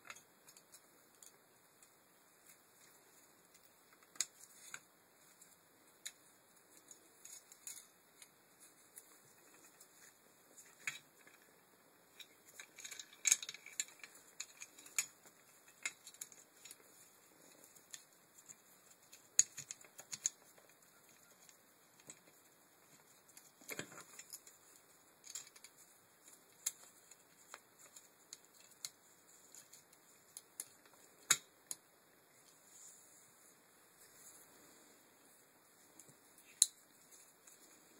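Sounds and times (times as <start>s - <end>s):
metal parts clicking and rattling: 12.1s - 29.8s.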